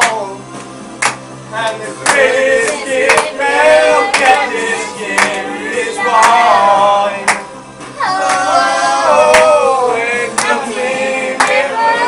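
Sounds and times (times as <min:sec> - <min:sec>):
sharp claps: 0:00.0 - 0:03.4, 0:04.1 - 0:04.4, 0:05.2 - 0:05.4, 0:06.2 - 0:06.4, 0:07.2 - 0:07.5, 0:08.2 - 0:08.5, 0:09.3 - 0:09.6, 0:10.4 - 0:10.6, 0:11.4 - 0:11.6
voices singing: 0:01.5 - 0:12.0.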